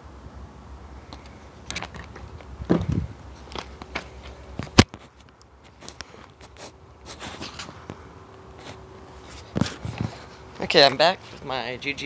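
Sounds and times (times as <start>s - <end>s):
low steady rumble: 0.0s - 4.7s.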